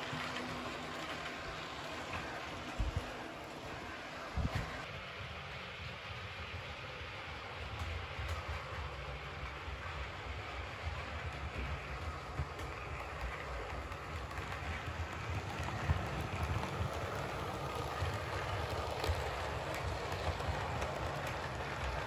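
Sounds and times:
model train rumbling on track: 0.0s - 22.0s.

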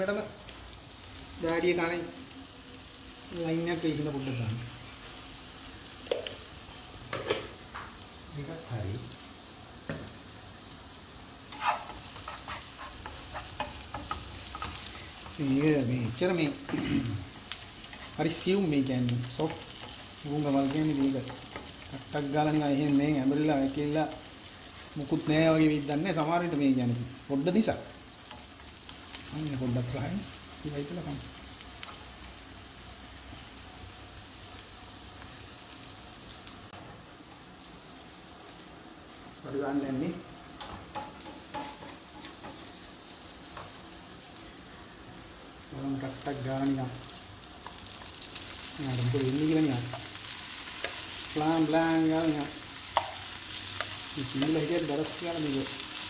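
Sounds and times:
onions sizzling in oil: 0.0s - 56.0s
utensil scraping a pan: 11.5s - 14.9s.

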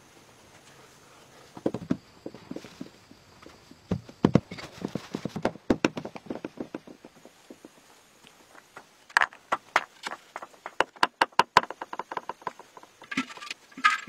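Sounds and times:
grass sods thumping on earth: 1.5s - 11.2s.

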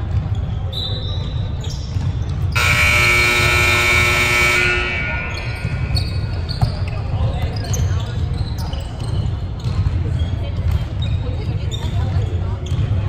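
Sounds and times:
game buzzer blast: 2.6s - 6.4s.

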